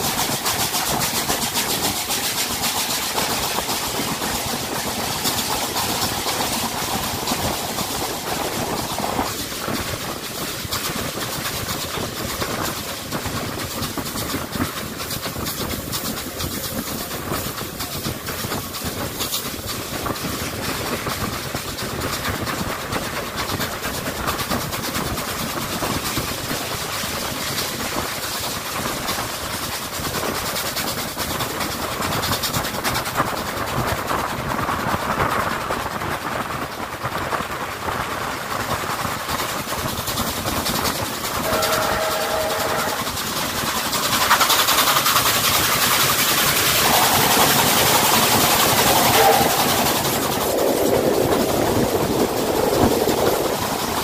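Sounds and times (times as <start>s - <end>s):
steam locomotive: 0.0s - 54.0s
train wheels on rails: 0.0s - 54.0s.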